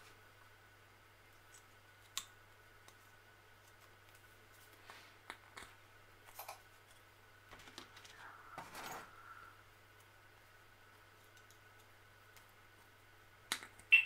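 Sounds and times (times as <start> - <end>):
faint low hum: 0.0 - 14.0.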